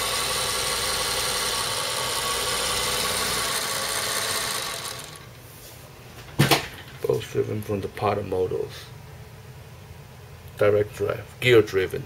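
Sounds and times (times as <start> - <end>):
sewing machine running: 0.0 - 5.3.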